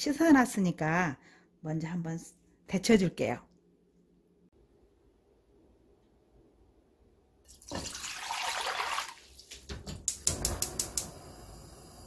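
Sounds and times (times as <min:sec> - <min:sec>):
water splashing into wok: 0:07.5 - 0:09.7.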